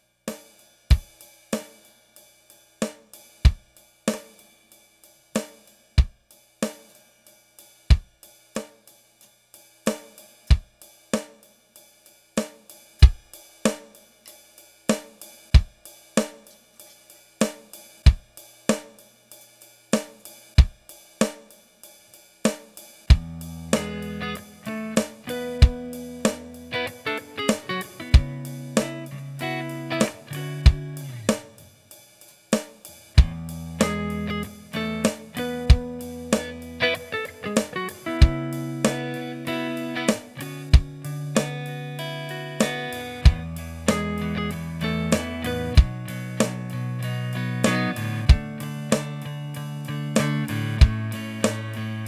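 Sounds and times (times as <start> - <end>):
electronic drum beat: 0.4 - 1.8, 2.8 - 4.4, 5.4 - 7.0, 7.9 - 8.9, 9.9 - 11.4, 12.4 - 14.0, 14.9 - 16.6, 17.4 - 19.0, 19.9 - 21.6, 22.5 - 52.0
heavy kick drum: 6.0 - 6.2, 13.0 - 13.3, 18.1 - 18.3, 23.1 - 24.0, 25.5 - 26.5, 28.1 - 28.4, 30.3 - 31.5, 33.2 - 34.1, 35.6 - 36.6, 38.2 - 38.5, 40.7 - 41.0, 43.2 - 44.1, 45.2 - 46.6, 48.3 - 48.6, 50.8 - 51.6
guitar: 23.1 - 31.8, 33.1 - 52.0.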